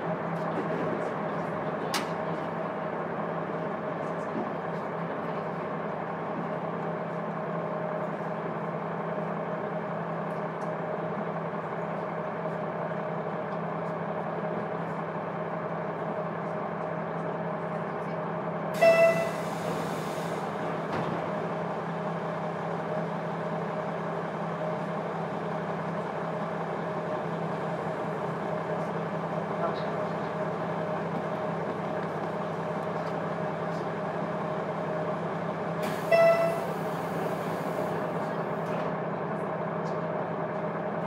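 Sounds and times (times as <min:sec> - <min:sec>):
diesel railcar engine drone: 0:00.0 - 0:41.0
train horn blast: 0:18.8 - 0:19.5, 0:36.0 - 0:36.8.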